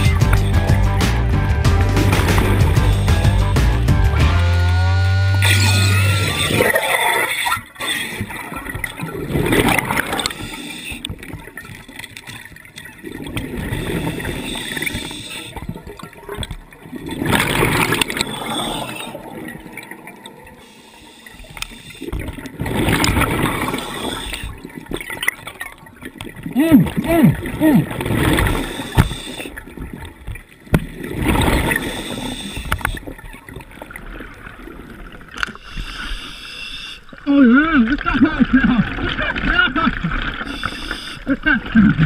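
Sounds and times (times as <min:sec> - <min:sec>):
gurgling bubbles: 0:05.3 - 0:36.0
diver breathing through regulator: 0:09.7 - 0:11.2, 0:13.5 - 0:15.6, 0:17.4 - 0:24.7, 0:26.8 - 0:29.6, 0:31.4 - 0:33.1, 0:35.4 - 0:37.2, 0:40.4 - 0:41.3.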